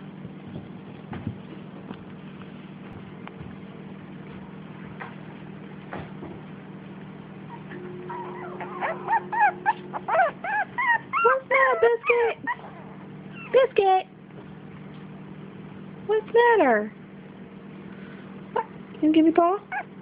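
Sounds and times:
low steady hum: 0.0 - 20.0
puppy whining and yipping: 7.5 - 13.6, 19.7 - 20.0.

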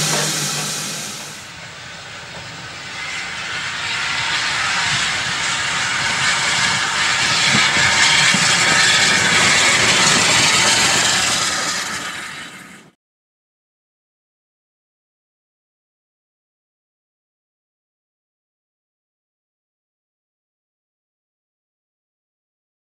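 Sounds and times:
steam locomotive hissing and rumbling: 0.0 - 13.0.

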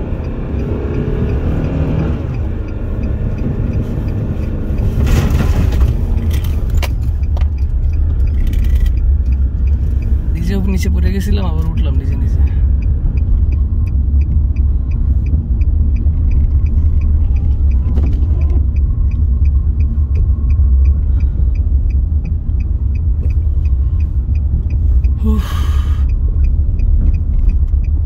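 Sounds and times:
car rumble inside cabin: 0.0 - 28.0
faint high ticking: 6.0 - 28.0.

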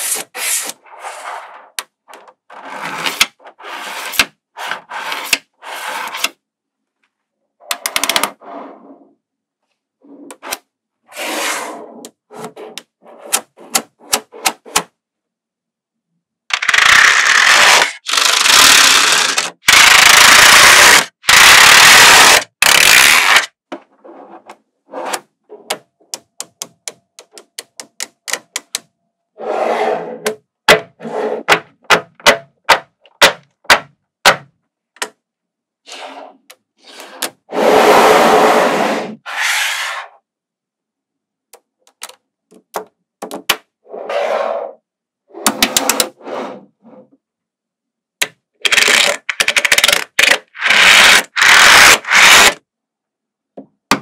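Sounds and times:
magnetic balls rubbing and sliding: 0.0 - 6.4, 7.7 - 9.2, 10.0 - 14.8, 23.1 - 25.8, 29.4 - 30.3, 30.9 - 31.5, 35.9 - 40.2, 43.8 - 47.2.

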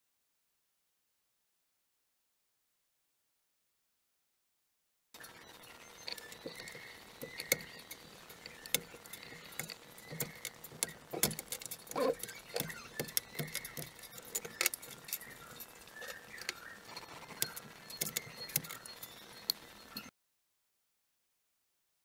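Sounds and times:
plastic parts clicking and tapping: 6.0 - 20.1.

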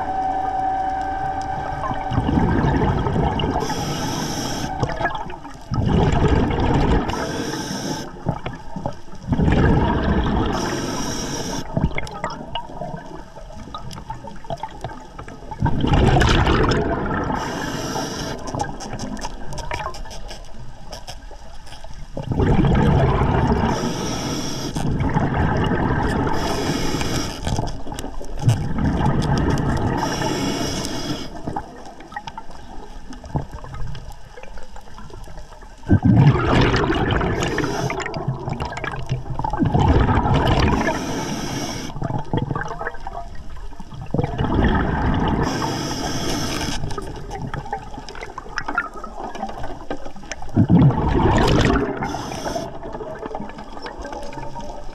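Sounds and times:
diver inhaling through regulator: 2.3 - 5.0, 7.0 - 8.2, 10.4 - 11.8, 17.2 - 18.6, 23.5 - 25.0, 26.1 - 27.6, 29.8 - 31.6, 37.2 - 38.2, 40.6 - 42.0, 45.2 - 46.9, 51.4 - 52.9.

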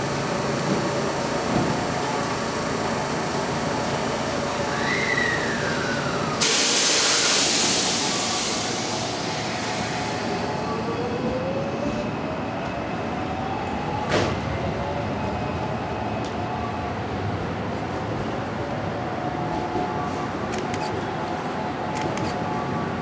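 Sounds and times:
train whining tone: 4.4 - 16.8
train air hiss: 4.5 - 10.9.

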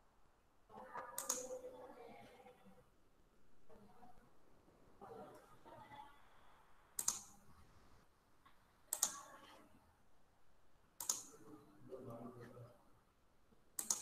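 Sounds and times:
computer mouse clicks: 0.8 - 1.7, 7.0 - 7.5, 8.9 - 9.3, 11.0 - 11.5, 13.8 - 14.0.

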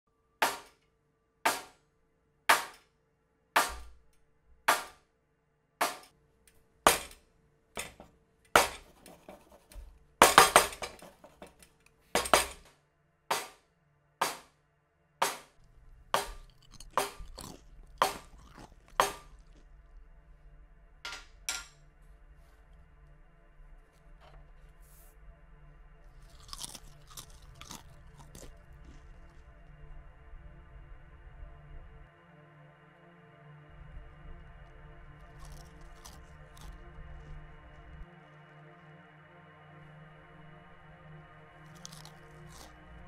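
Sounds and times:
hammer striking wooden block: 0.4 - 0.7, 1.5 - 1.8, 2.5 - 2.8, 4.7 - 5.0, 5.8 - 6.1, 7.8 - 9.4, 10.2 - 11.2, 12.2 - 12.7, 13.3 - 13.6, 14.2 - 14.5, 15.2 - 15.5.

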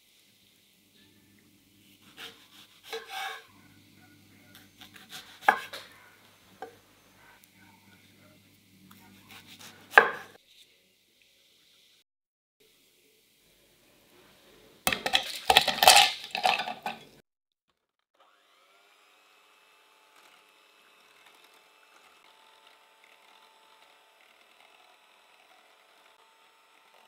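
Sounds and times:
ice cubes clattering in glass bowl: 14.9 - 17.2
electric hand mixer whining: 18.1 - 27.0.

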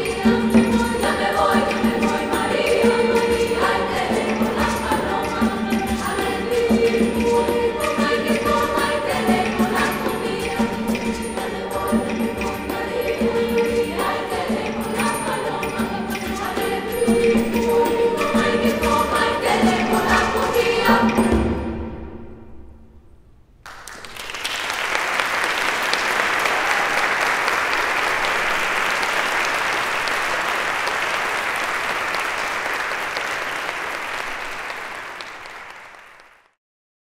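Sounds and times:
girls' choir singing chord: 0.0 - 21.6
audience applause: 23.7 - 36.6.

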